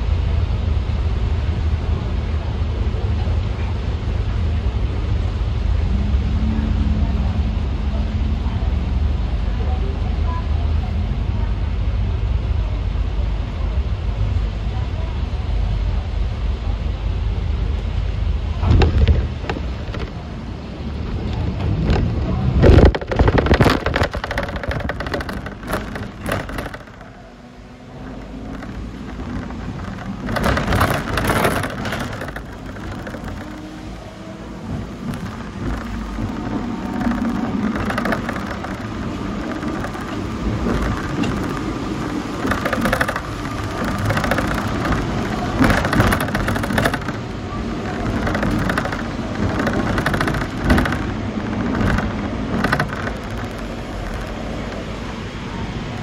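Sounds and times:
tram running: 0.0s - 56.0s
clicks and knocks: 18.6s - 20.3s, 21.2s - 55.2s.

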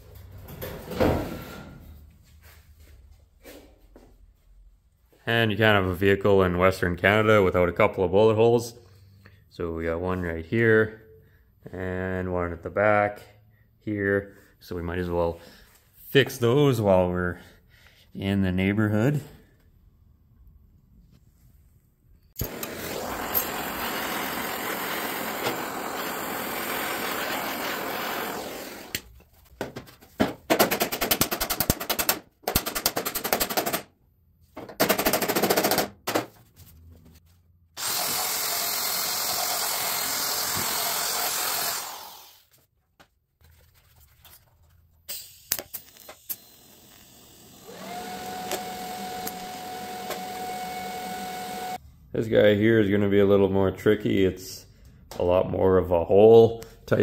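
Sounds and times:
hissing shop-tool noise: 22.3s - 29.2s, 37.8s - 42.6s, 45.1s - 51.8s
power tool motor humming: 22.4s - 29.0s, 37.8s - 42.4s, 46.2s - 51.8s
welder crackling: 22.4s - 29.2s, 45.5s - 50.4s.

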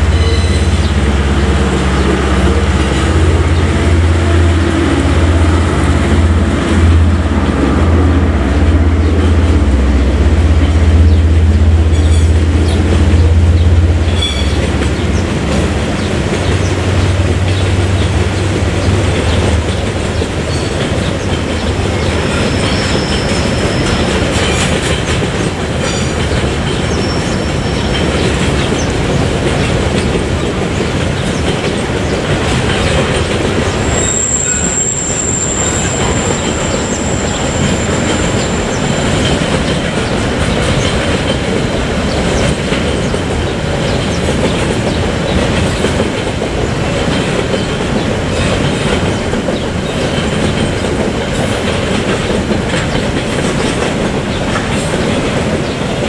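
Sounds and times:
high-pitched wheel squeal: 0.0s - 0.9s, 33.8s - 39.2s
freight train wagons rolling: 0.0s - 56.0s.

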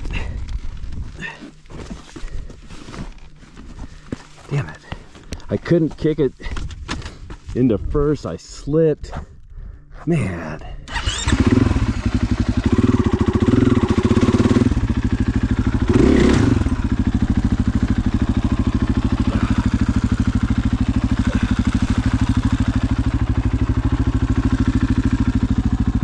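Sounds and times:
dirt bike engine idling: 10.8s - 26.0s.

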